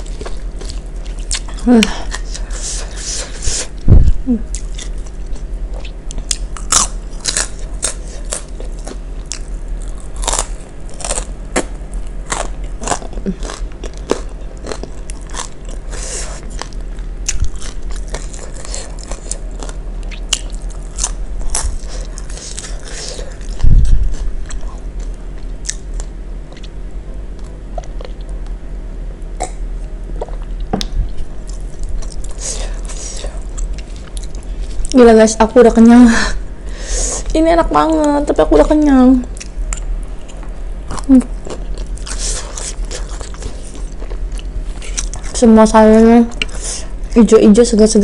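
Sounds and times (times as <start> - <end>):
crunching crispy crackers: 4.6 - 26.7, 39.4 - 45.5.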